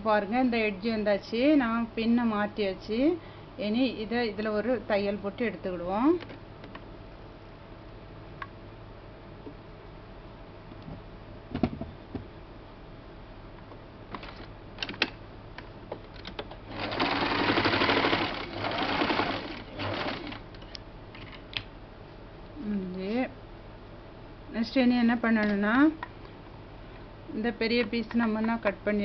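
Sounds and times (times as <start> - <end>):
sewing machine stitching: 16.7 - 20.4.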